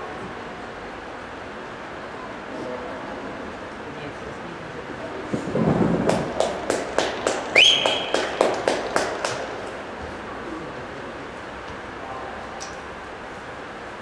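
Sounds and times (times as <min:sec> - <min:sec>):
rhythmic hand clapping: 0:06.0 - 0:09.8
rising whistle: 0:07.5 - 0:08.4.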